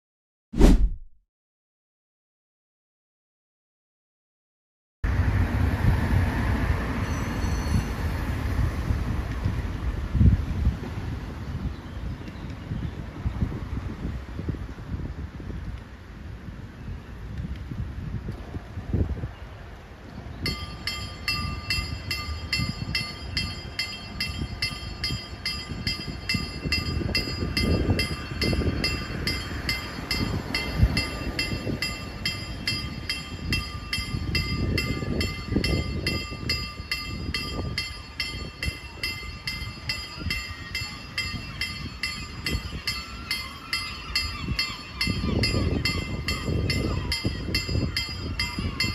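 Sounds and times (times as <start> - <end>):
level crossing warning bell: 20.4 - 48.9.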